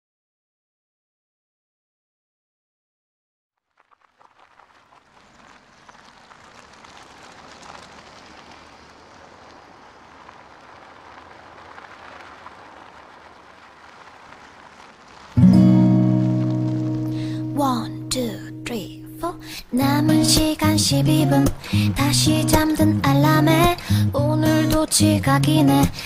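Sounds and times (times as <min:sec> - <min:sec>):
loud music with strummed guitar: 0:15.4 - 0:17.3, 0:19.9 - 0:26.0
steady hiss: 0:19.2 - 0:26.0.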